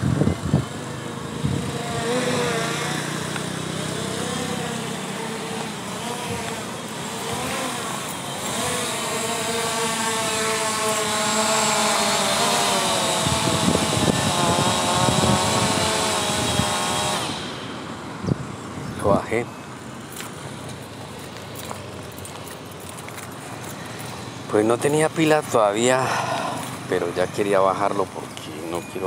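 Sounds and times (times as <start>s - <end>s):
gusty buffeting: 0.0s - 2.4s, 13.0s - 19.2s
drone propellers whining: 0.0s - 29.0s.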